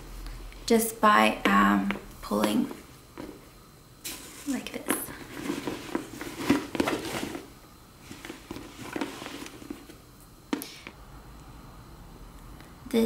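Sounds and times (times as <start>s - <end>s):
bag rustling and rubbing: 4.0s - 10.0s.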